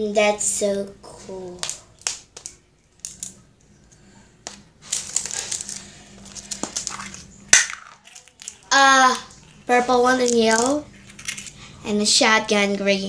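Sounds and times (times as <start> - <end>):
plastic crinkling and rustling: 4.4 - 11.6.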